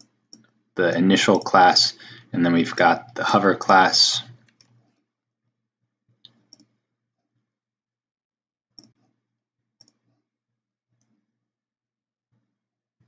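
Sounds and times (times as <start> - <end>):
mouse and keyboard clicks: 6.3 - 6.8, 8.8 - 9.0.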